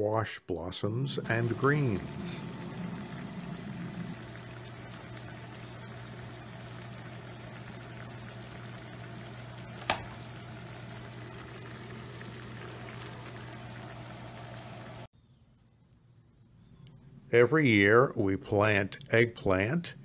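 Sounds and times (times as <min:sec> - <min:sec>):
low hum: 0:00.8 - 0:15.1
water bubbling in a pan: 0:01.0 - 0:15.1.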